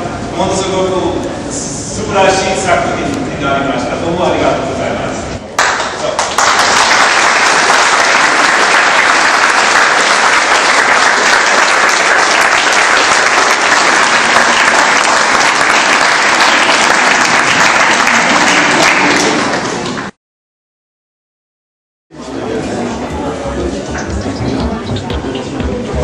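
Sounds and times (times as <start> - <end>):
audience applauding: 5.6 - 20.2.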